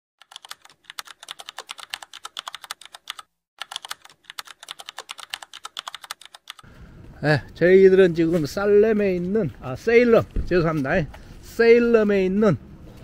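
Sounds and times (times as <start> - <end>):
keyboard typing clicks: 0.2 - 6.7.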